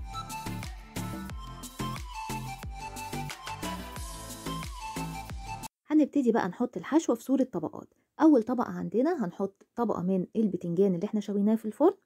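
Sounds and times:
background music with pitched notes: 0.0 - 5.7.

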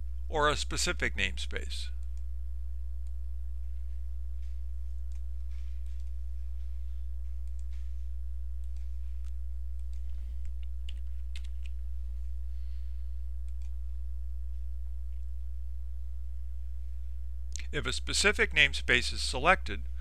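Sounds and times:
steady low hum: 0.0 - 20.0
keyboard keys and mouse clicks: 5.1 - 6.2, 7.4 - 8.0, 8.6 - 11.8.

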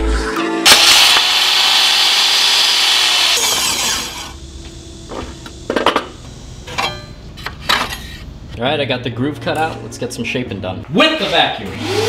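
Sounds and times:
table saw cutting wood: 0.6 - 4.4, 11.2 - 12.0.

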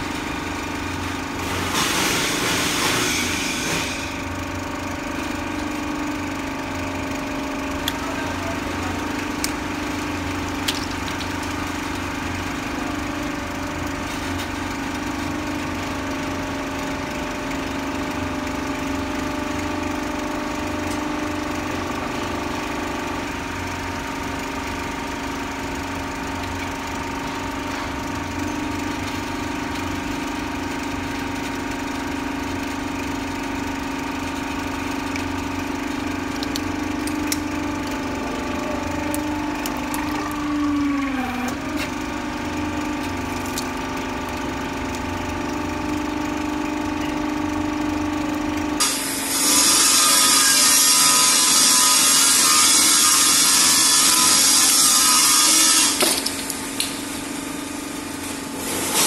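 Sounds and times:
hydraulic press pump humming: 0.0 - 59.0.

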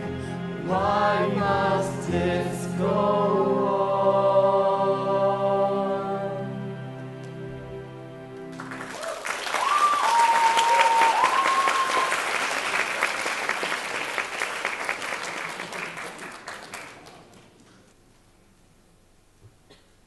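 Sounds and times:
audience applauding: 8.5 - 17.8
audience cheering: 8.6 - 14.9.

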